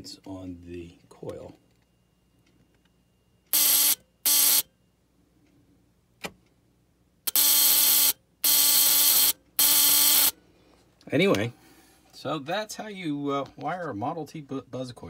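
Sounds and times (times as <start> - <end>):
buzz coil buzzing: 7.3 - 10.3.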